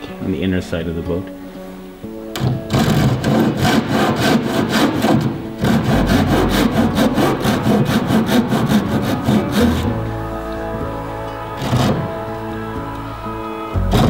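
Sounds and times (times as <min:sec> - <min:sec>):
hand saw cutting wood: 0:02.4 - 0:10.0, 0:11.6 - 0:12.1.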